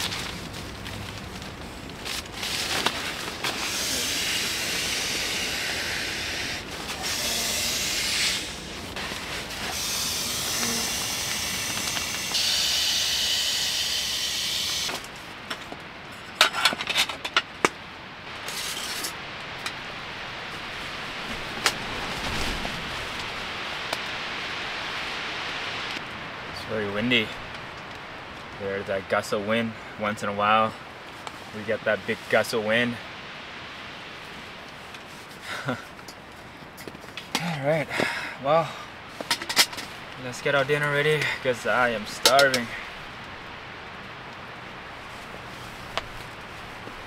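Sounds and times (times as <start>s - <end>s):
sharp clicks and rustles: 0.0s - 5.0s
rain: 0.0s - 47.0s
wind gusting against tent: 0.0s - 47.0s.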